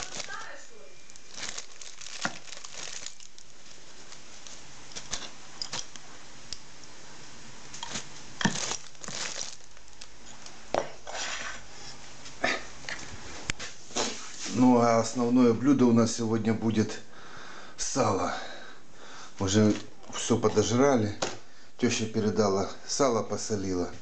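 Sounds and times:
plastic bag crinkling and rustling: 0.0 - 6.2, 7.6 - 10.7.

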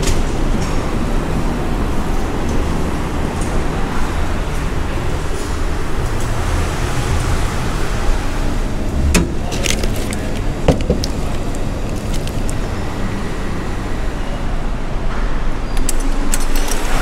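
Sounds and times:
low background rumble: 5.7 - 14.2
plastic bag rustling: 9.3 - 12.8.

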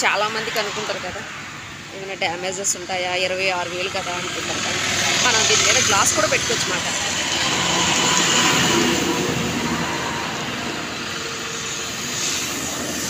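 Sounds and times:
vehicle passing by: 0.0 - 13.0.

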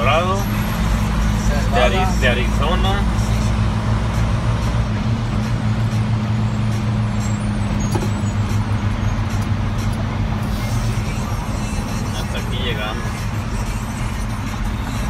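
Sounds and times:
vehicle engine low drone: 0.0 - 15.0.

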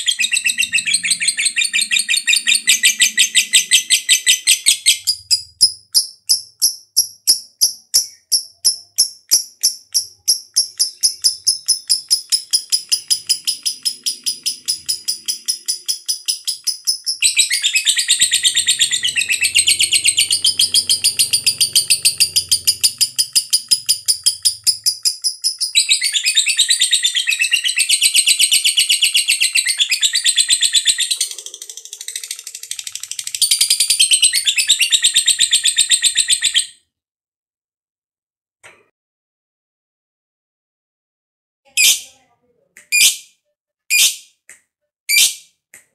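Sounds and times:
lovebird chattering trill: 0.0 - 36.7, 41.7 - 42.1.

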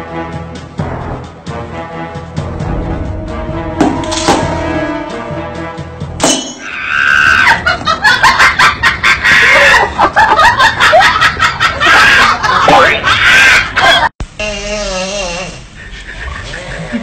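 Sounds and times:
high-pitched shrieking cries: 6.6 - 7.6, 11.8 - 13.8.

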